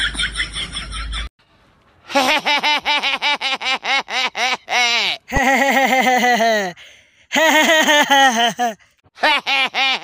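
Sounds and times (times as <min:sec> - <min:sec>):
man laughing: 0:02.1 - 0:10.0.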